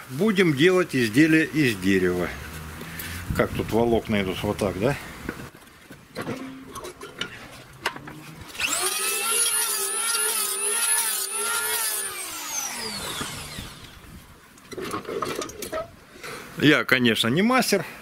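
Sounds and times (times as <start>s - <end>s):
electric hand planer whine: 8.5s - 14.1s.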